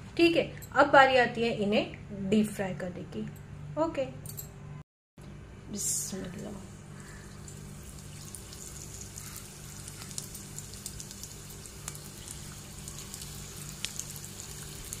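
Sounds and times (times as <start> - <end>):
deep-frying sizzle with pops: 7.2 - 15.0.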